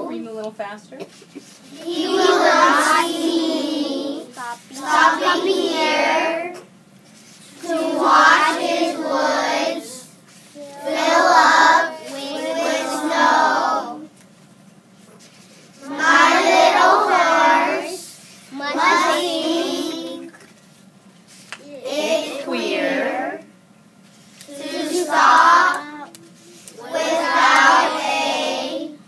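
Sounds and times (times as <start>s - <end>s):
children reading aloud in unison: 1.6s - 6.6s, 7.4s - 14.1s, 15.8s - 20.4s, 21.6s - 23.5s, 24.5s - 29.0s.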